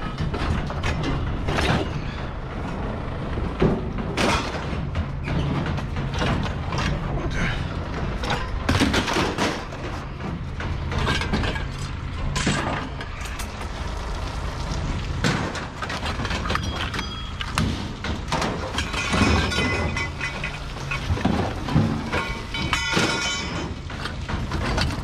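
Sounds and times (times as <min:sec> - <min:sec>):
engine idling hum: 0:00.0 - 0:25.0
scrap metal clanking: 0:15.2 - 0:25.0.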